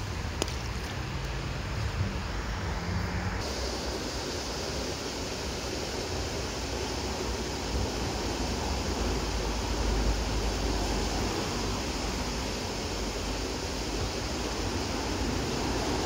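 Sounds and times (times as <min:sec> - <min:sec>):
road traffic rush: 0:00.0 - 0:16.0
vehicle passing: 0:00.8 - 0:03.4.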